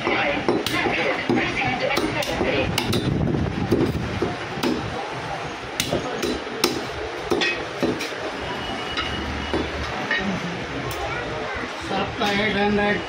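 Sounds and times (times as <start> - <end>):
cleaver chopping meat and bone: 0.0 - 3.1, 4.6 - 4.9, 5.8 - 8.1.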